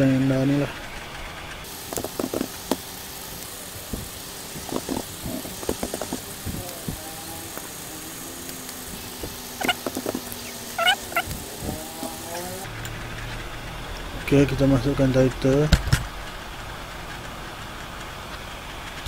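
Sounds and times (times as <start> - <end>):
short high-pitched squeaks: 9.6 - 12.7.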